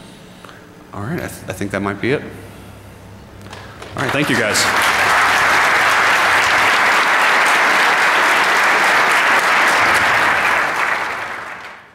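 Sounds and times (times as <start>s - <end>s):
audience applauding: 3.8s - 11.9s.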